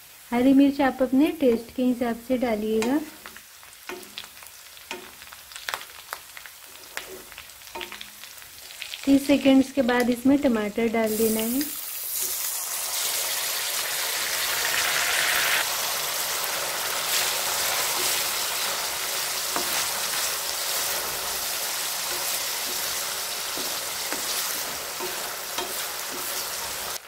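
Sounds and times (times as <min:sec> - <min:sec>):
tomatoes sizzling in hot oil: 0:00.0 - 0:27.0
wooden spatula knocking pan: 0:22.0 - 0:26.6.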